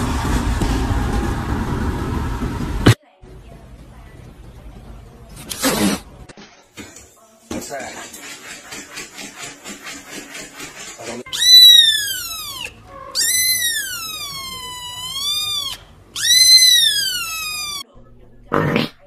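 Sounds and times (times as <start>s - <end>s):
rhythmic rasping: 7.7s - 13.4s
cat meowing: 11.3s - 17.8s.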